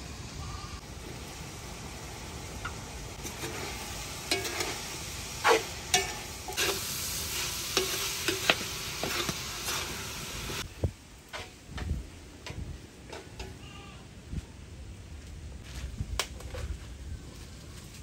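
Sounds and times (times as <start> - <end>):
food sizzling in a wok: 0.0 - 11.6
metal ladle scraping a wok: 3.2 - 10.1.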